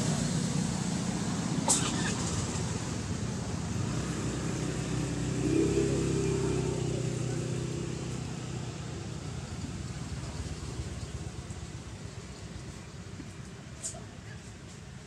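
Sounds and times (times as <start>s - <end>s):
vehicle engine passing: 0.0s - 12.1s.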